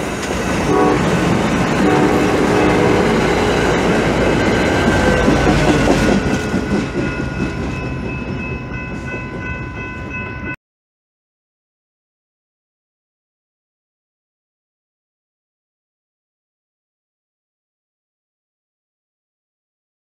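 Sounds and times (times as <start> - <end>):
wheels clacking over rail joints: 0.0 - 9.5
train rumbling past: 0.0 - 10.6
train horn: 0.6 - 6.2.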